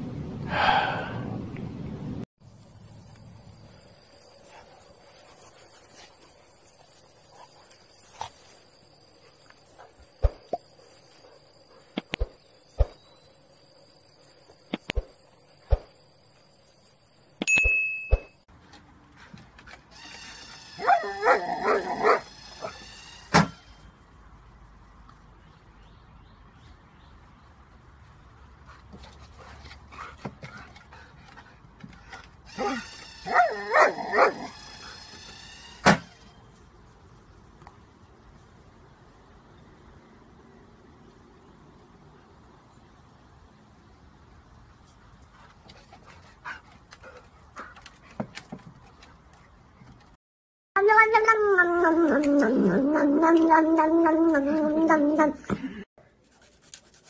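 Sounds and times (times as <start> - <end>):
brief metallic ring: 17.4 - 18.4
high-pitched insect buzz: 20.0 - 23.9, 32.5 - 36.4
dog whining and yipping: 20.1 - 22.9, 32.5 - 35.1.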